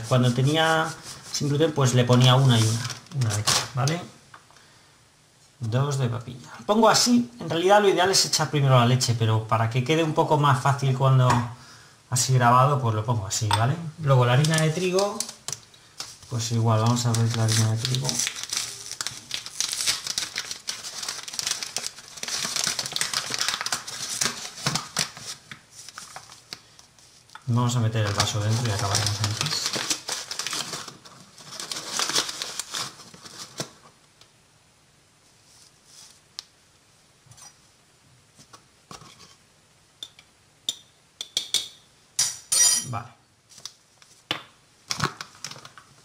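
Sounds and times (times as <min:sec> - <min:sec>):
paper bag crinkling: 0:00.0 - 0:04.0, 0:14.0 - 0:26.6, 0:27.8 - 0:33.8
spoon tapping a cup: 0:40.0 - 0:41.8.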